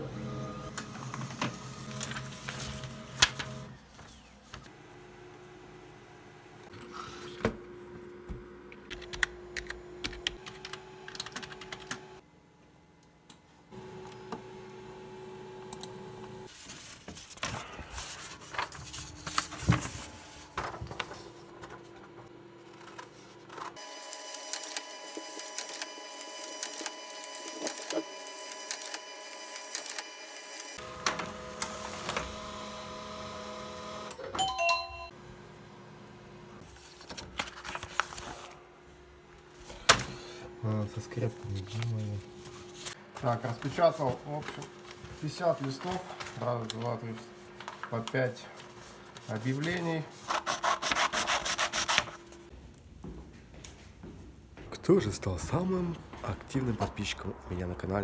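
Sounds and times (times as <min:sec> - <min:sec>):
printer printing: 0:00.0 - 0:05.8, 0:18.0 - 0:34.3
paper rustling: 0:01.0 - 0:04.7, 0:16.5 - 0:23.8, 0:36.6 - 0:38.6, 0:41.0 - 0:52.4
scissors cutting paper: 0:49.5 - 0:52.2.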